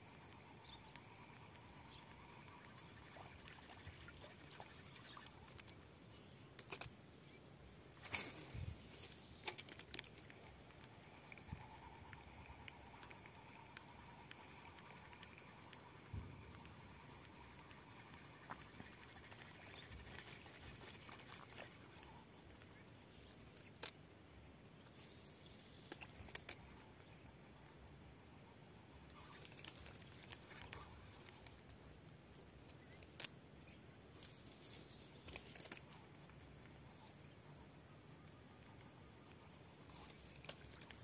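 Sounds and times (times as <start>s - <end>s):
thin steady high tone: 10.4s - 23.4s.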